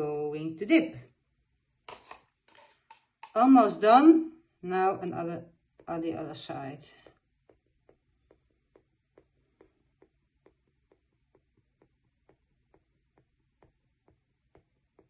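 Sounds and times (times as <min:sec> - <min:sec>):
dotting tool tapping on canvas: 0:06.9 - 0:15.0.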